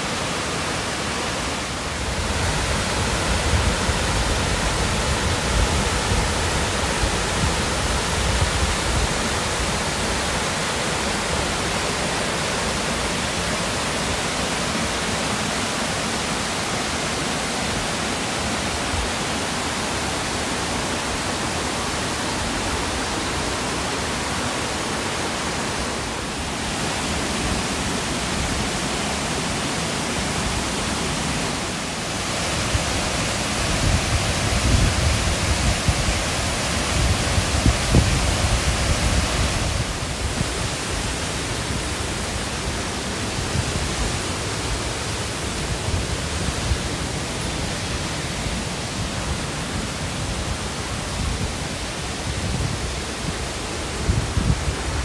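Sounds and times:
river rushing over rapids: 0.0 - 55.0
wind buffeting microphone: 32.5 - 42.4, 47.8 - 55.0.

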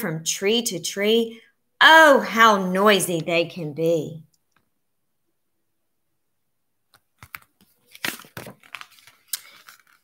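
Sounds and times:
paper rustling and crackling: 7.2 - 10.0.

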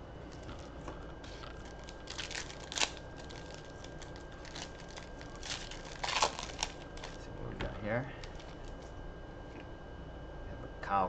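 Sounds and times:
foil wrapper crinkling and tearing: 0.3 - 7.2, 8.2 - 8.9.

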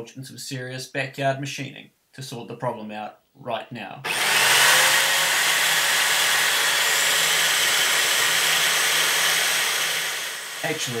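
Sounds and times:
electric drill humming: 4.0 - 11.0
file on spinning shaft: 4.1 - 11.0.

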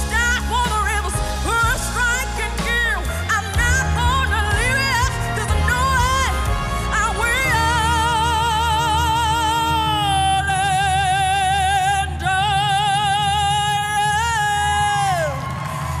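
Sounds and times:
backing track with steady beat: 0.0 - 8.7.

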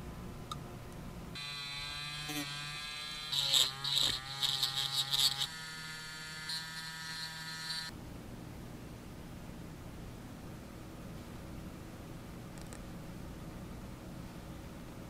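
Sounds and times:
rotary tool motor whining: 1.4 - 7.9.

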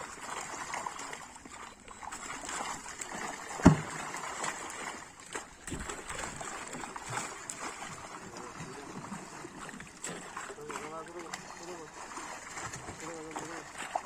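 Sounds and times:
water splashing and sloshing: 0.0 - 14.0
loud thump: 3.6 - 4.0.

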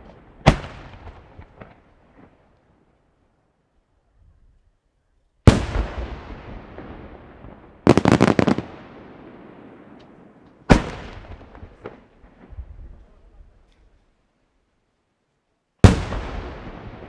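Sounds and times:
small firework pops: 0.0 - 2.7, 9.9 - 12.6.

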